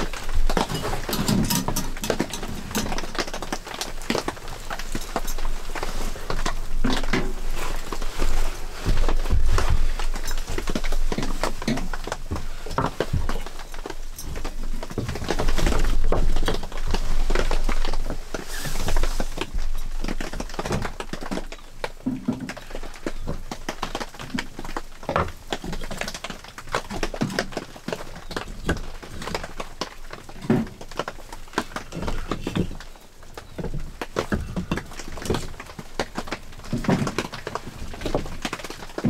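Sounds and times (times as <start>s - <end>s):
close rustling: 0.0s - 21.5s
wood fire crackling: 0.0s - 39.0s.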